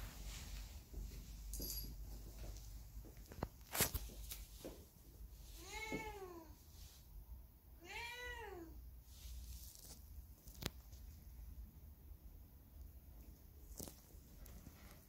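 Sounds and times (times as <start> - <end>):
cat meowing: 5.6 - 6.6, 7.8 - 8.8.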